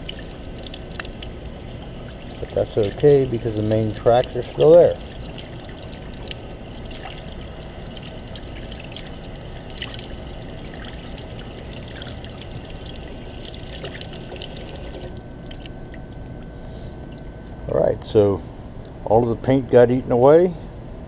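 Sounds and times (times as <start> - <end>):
tap water running into sink: 0.0 - 16.1.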